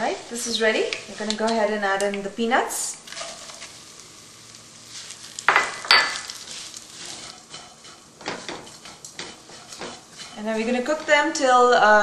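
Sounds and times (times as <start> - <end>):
peanuts sizzling in hot oil: 0.0 - 12.0
spatula scraping a pan: 3.1 - 3.8, 4.8 - 11.5.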